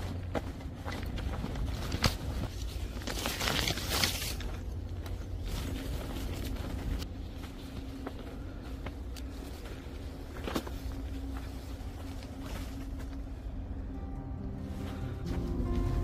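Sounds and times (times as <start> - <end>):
steady low rumble: 0.0 - 16.0
rustling through leaves and brush: 1.1 - 13.4
footsteps on dirt trail: 14.6 - 16.0.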